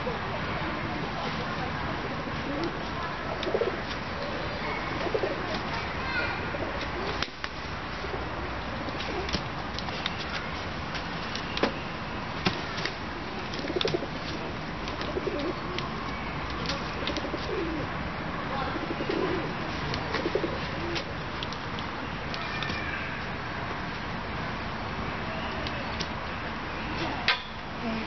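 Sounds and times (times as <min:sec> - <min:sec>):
outdoor background noise: 0:00.0 - 0:28.0
pigeons cooing: 0:02.1 - 0:05.6, 0:06.4 - 0:07.2, 0:08.0 - 0:09.4, 0:13.4 - 0:15.9, 0:16.7 - 0:18.0, 0:18.6 - 0:21.2.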